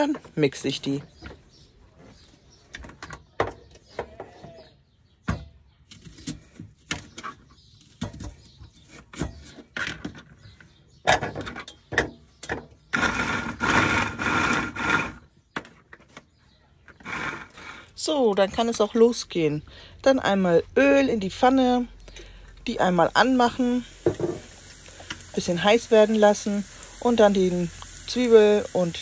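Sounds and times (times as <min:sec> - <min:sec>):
pull-cord food chopper whirring: 0:12.9 - 0:15.2, 0:17.0 - 0:17.9.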